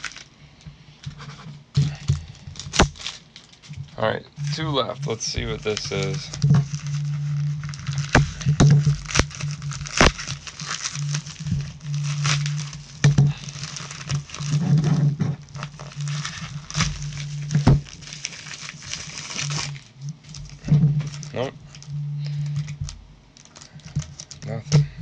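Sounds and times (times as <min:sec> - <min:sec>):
bubble mailer crinkling: 0:00.0 - 0:00.3, 0:01.1 - 0:24.8
low hum: 0:03.7 - 0:25.0.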